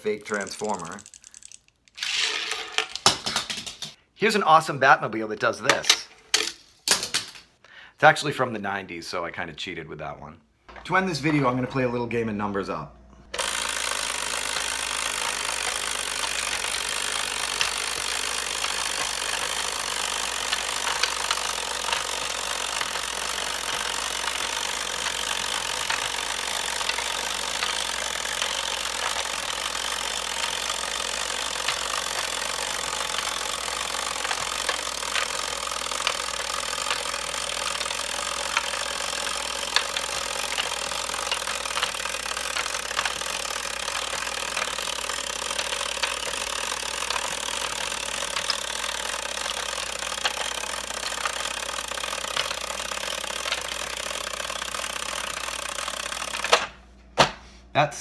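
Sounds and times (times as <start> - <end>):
game timer buzzing: 0.0 - 2.7, 13.3 - 56.7
plastic pegs clicking: 0.0 - 4.0, 13.4 - 56.8.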